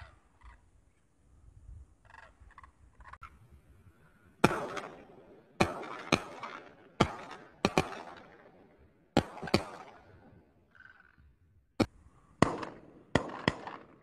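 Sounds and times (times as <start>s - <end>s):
shotgun shots with echo: 4.4s - 8.6s, 9.2s - 10.2s, 12.4s - 14.0s.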